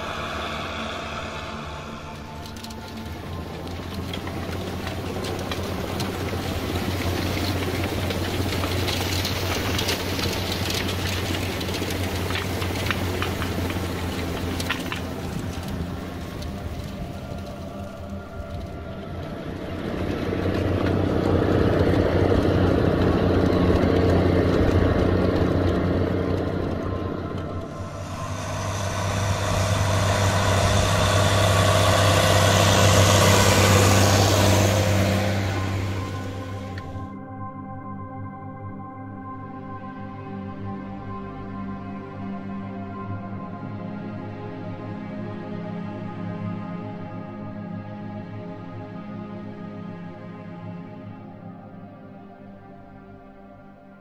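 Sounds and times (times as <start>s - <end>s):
broad hiss of field work: 0.0s - 5.2s, 27.7s - 36.8s
tractor diesel engine running: 0.0s - 37.1s
seed drill tines rattling: 1.9s - 17.6s.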